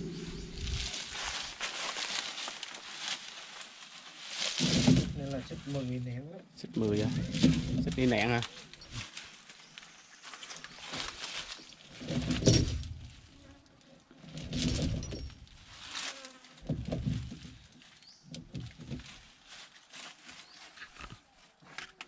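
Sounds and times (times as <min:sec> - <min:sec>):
chain thudding on rubber: 0:00.3 - 0:01.6, 0:04.4 - 0:05.5, 0:06.8 - 0:09.0, 0:11.8 - 0:13.3, 0:14.2 - 0:15.7, 0:16.6 - 0:17.7
steel chain rattling and clinking: 0:00.3 - 0:01.6, 0:04.4 - 0:05.6, 0:06.8 - 0:09.0, 0:11.9 - 0:13.2, 0:14.3 - 0:15.6.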